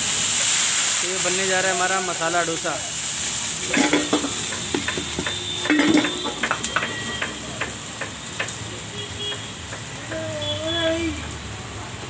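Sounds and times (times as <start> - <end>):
griddle hissing and sizzling: 0.0 - 12.0
bowl scraping on griddle: 3.5 - 8.5
steel utensils clinking: 3.5 - 8.7
ringing metal clank: 3.7 - 8.1.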